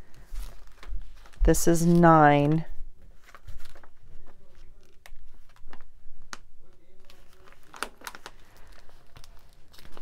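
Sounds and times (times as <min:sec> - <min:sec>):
paper pages rustling: 0:00.0 - 0:10.0.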